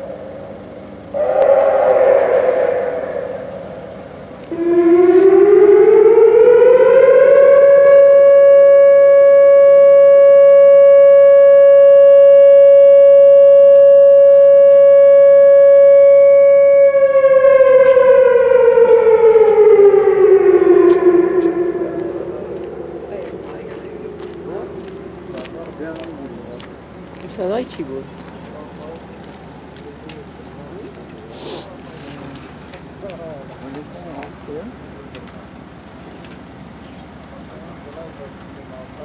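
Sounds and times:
alarm siren wailing: 0.0s - 27.7s.

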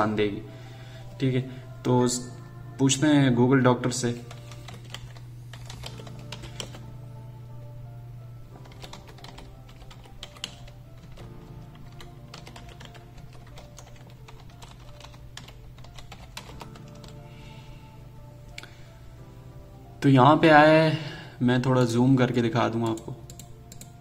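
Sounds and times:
background music: 0.0s - 24.0s
keyboard typing: 4.1s - 6.9s, 8.6s - 17.2s, 22.8s - 24.0s.

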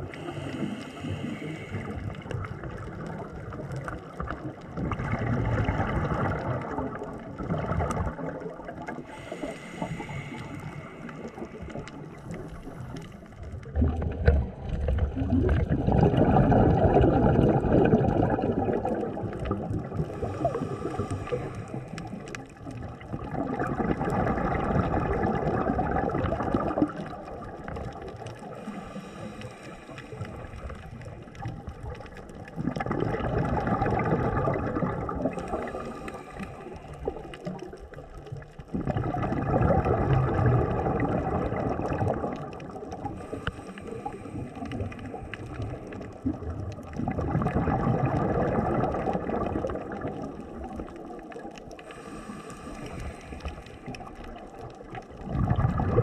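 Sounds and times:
regulator bubbles gurgling: 0.0s - 56.0s
hissing inhalations: 0.1s - 2.2s, 9.0s - 13.2s, 20.0s - 22.3s, 28.6s - 30.6s, 35.3s - 37.3s, 43.2s - 45.5s, 51.8s - 54.1s.

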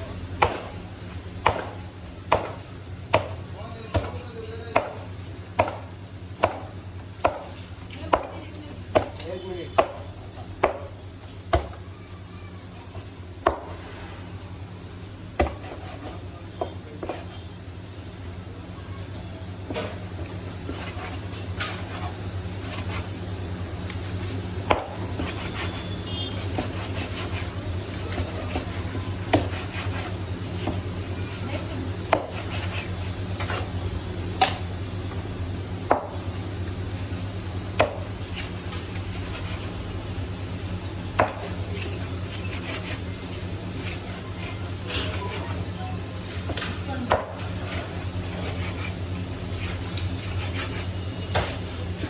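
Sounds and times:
soft knife scraping: 41.7s - 43.1s.

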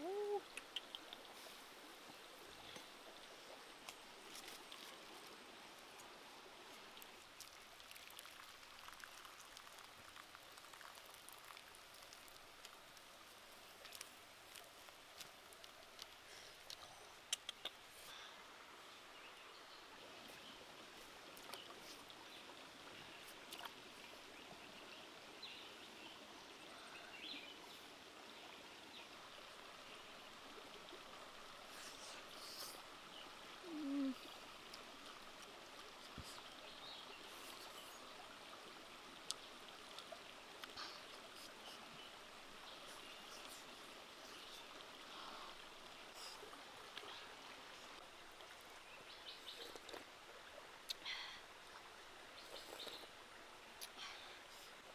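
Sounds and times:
stream running over rocks: 0.0s - 54.9s
small clicks and chirps: 0.4s - 1.3s, 13.8s - 17.9s.

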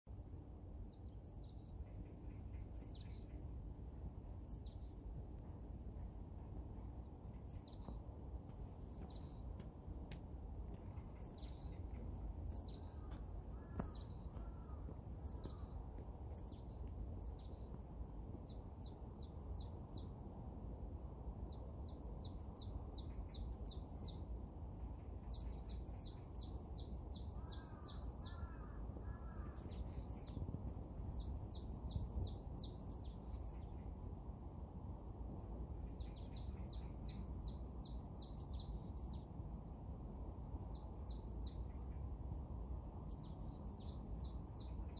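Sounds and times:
low background rumble: 0.1s - 44.9s
songbirds singing: 0.4s - 5.5s, 6.5s - 20.4s, 21.4s - 34.1s, 35.8s - 39.4s, 40.6s - 42.1s, 43.0s - 44.9s
lower bird calls: 11.0s - 17.8s, 27.2s - 30.4s.

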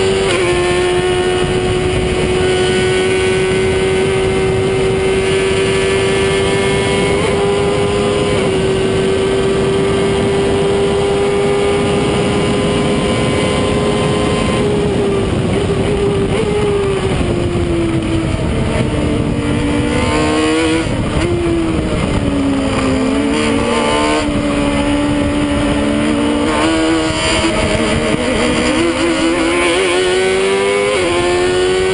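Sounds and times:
racing car engine revving: 0.0s - 31.9s
wind rush: 0.0s - 31.9s.

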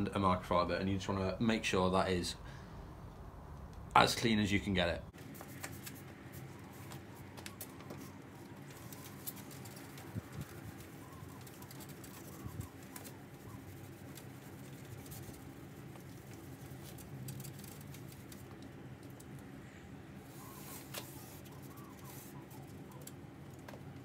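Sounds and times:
birds calling: 7.3s - 15.6s, 18.6s - 24.0s
cloth rubbing on metal: 8.1s - 18.5s.

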